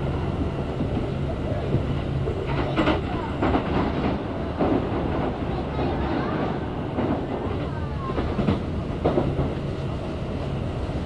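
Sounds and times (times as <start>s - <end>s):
train wheels rumbling on rails: 0.0s - 11.0s
wheels clacking over rail joints: 0.0s - 11.0s.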